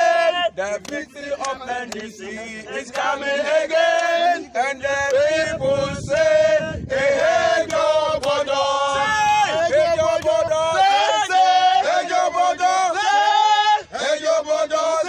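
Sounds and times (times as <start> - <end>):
men chanting in unison: 0.0 - 15.0
hand claps: 0.7 - 3.2, 3.8 - 4.3, 7.6 - 8.5, 10.1 - 10.4.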